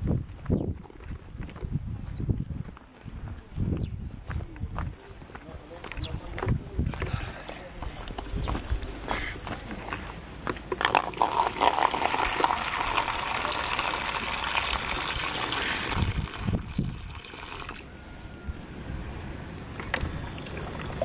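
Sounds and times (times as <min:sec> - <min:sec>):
water pouring into plastic basin: 0:10.8 - 0:17.8, 0:20.2 - 0:21.0
water trickling: 0:10.8 - 0:17.8, 0:20.2 - 0:21.0.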